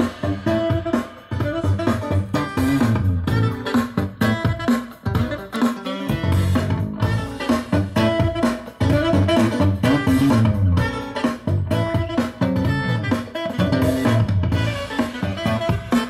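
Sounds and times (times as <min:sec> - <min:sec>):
guitar music through speaker cabinet: 0:00.0 - 0:16.0.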